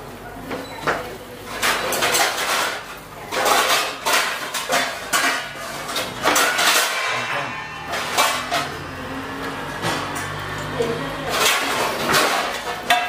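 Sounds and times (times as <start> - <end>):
metal spatula scraping frying pan: 2.1 - 10.5.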